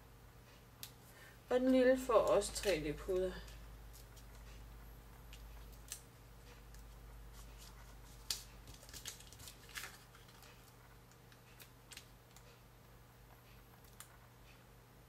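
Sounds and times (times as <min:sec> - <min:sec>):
paper rustling: 0:07.3 - 0:10.8.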